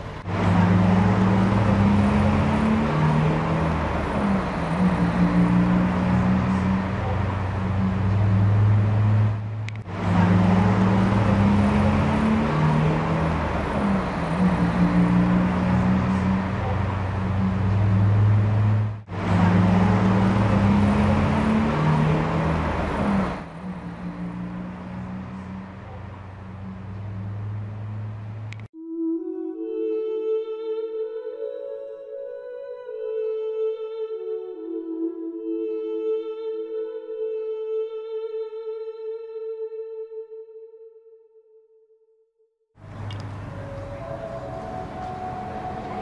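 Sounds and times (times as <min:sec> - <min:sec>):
vehicle engines humming: 0:00.0 - 0:28.7, 0:42.8 - 0:46.0
road noise: 0:00.0 - 0:28.8, 0:42.8 - 0:46.0.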